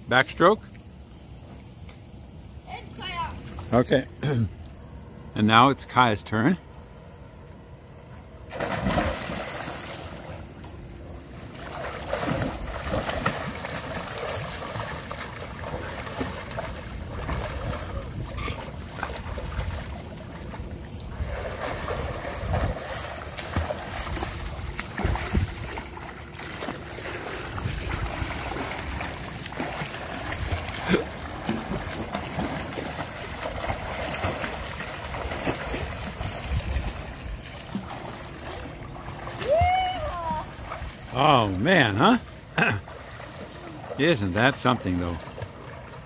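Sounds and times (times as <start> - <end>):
swimming strokes splashing: 8.4 - 46.0
loud splash into pool: 8.5 - 10.2.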